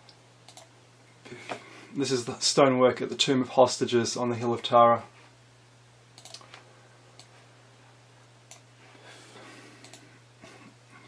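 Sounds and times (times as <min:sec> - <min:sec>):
low steady hum: 0:00.0 - 0:11.0
faint computer mouse clicks: 0:00.1 - 0:00.7, 0:06.2 - 0:06.6, 0:09.8 - 0:10.1.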